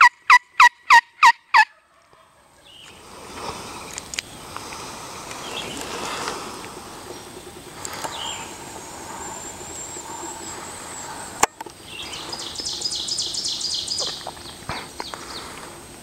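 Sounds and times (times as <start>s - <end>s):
songbird trilling: 5.4s - 15.5s.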